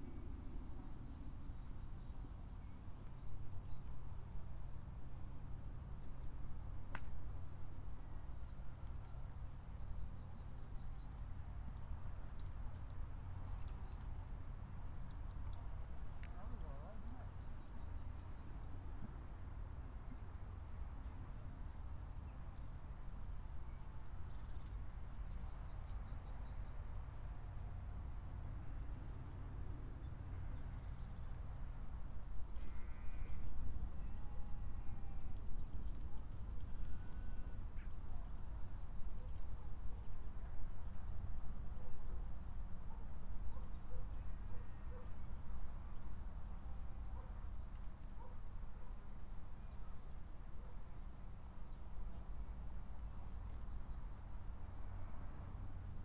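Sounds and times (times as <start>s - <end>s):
low wind rumble: 0.0s - 42.9s
small birds trilling and chirping: 8.4s - 27.1s, 29.7s - 34.2s, 47.2s - 50.7s.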